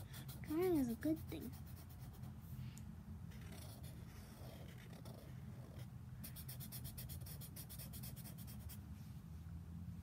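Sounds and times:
marker scratching on paper: 0:00.0 - 0:02.3, 0:03.3 - 0:08.8.

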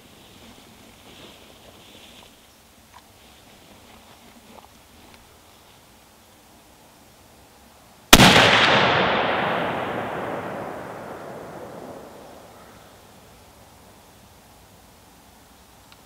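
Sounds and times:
rifle shot with echo: 0:08.1 - 0:12.7.

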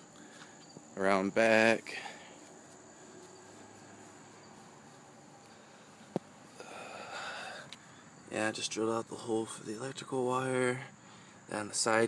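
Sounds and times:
soft scuffing rustling: 0:01.6 - 0:06.6.

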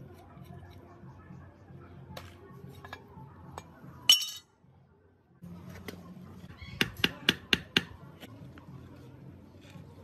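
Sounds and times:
ringing metal-on-metal clink: 0:04.1 - 0:04.5.

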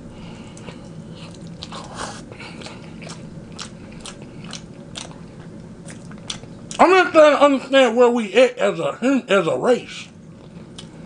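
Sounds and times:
person chewing crunchy food: 0:00.3 - 0:06.8, 0:10.3 - 0:11.0.

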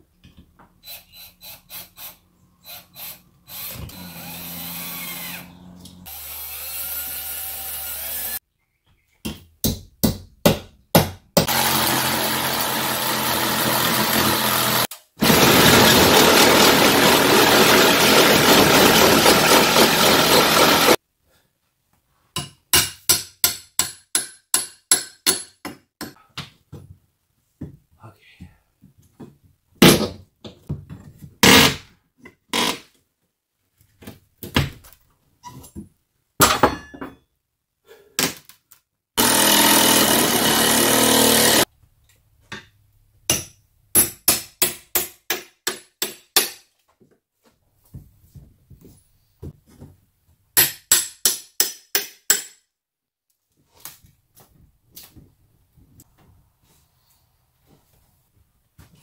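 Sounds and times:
hammer striking metal pry bar: 0:22.4 - 0:26.2, 0:43.3 - 0:46.7, 0:50.6 - 0:52.7.

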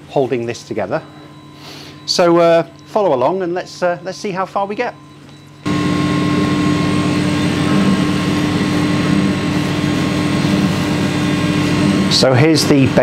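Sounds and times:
laser cutter whirring hum: 0:04.9 - 0:13.0.

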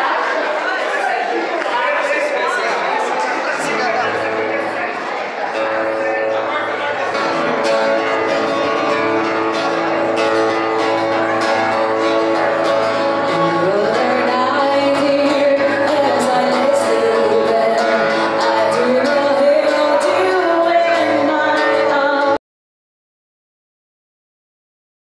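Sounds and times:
song with singing and guitar: 0:05.5 - 0:22.4.

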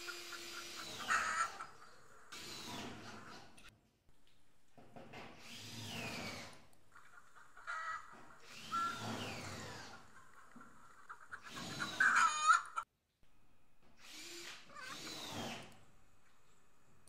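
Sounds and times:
cordless drill driving screws: 0:00.0 - 0:01.5, 0:02.3 - 0:03.7, 0:05.4 - 0:06.7, 0:08.4 - 0:10.0, 0:14.0 - 0:15.8.

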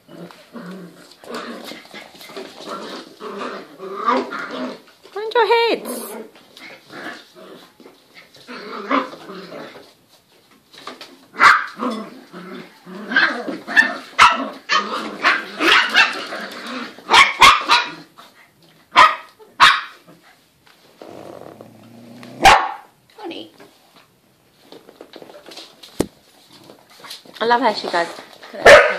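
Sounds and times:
puppy growling and yapping: 0:00.0 - 0:04.9, 0:05.8 - 0:09.9, 0:11.3 - 0:18.3, 0:21.0 - 0:22.9.

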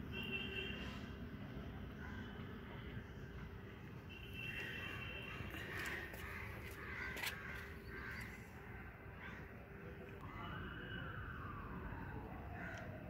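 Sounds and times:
birds calling: 0:04.7 - 0:09.5.

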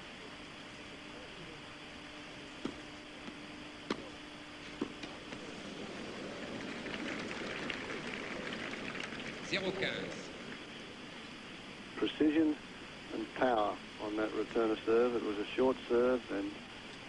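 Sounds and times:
broadcast hiss: 0:00.0 - 0:17.0
crowd applauding: 0:05.3 - 0:10.7.

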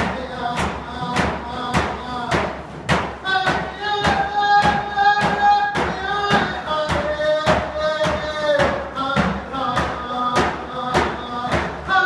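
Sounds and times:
singing with long notes: 0:03.2 - 0:12.0.

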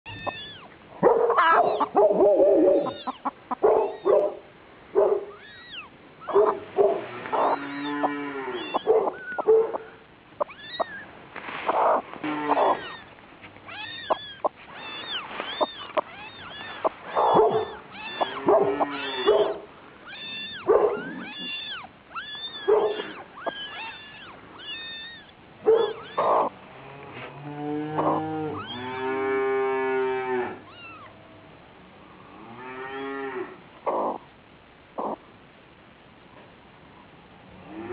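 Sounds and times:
kittens mewing: 0:00.1 - 0:04.3, 0:05.3 - 0:06.5, 0:07.2 - 0:11.1, 0:11.7 - 0:26.5.

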